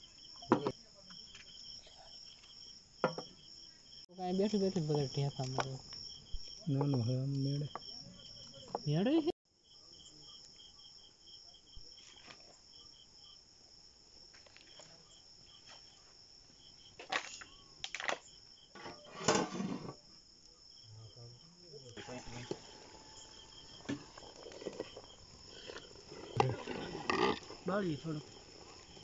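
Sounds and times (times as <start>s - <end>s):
crickets chirping: 0.0s - 29.0s.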